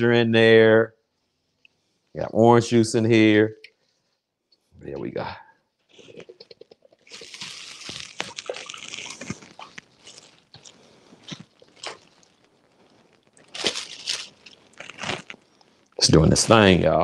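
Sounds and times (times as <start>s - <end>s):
plastic bag crinkling: 5.9s - 15.7s.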